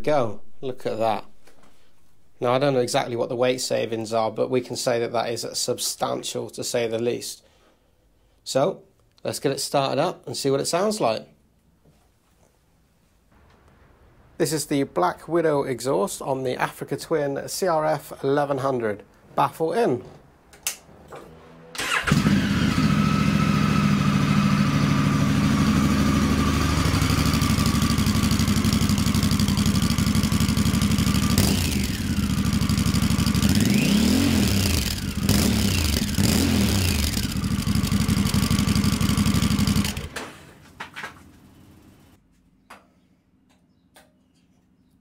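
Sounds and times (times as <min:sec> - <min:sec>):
motorcycle engine idling and revving: 0:21.1 - 0:40.3.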